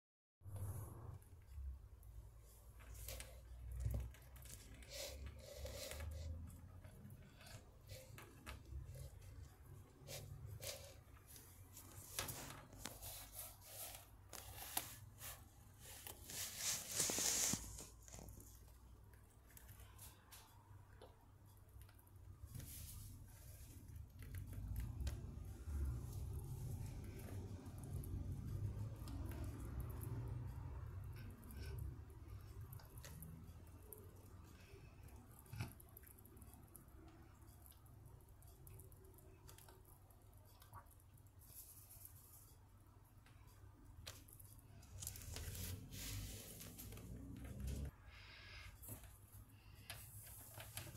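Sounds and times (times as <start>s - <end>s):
rustling hiss: 16.2s - 18.2s.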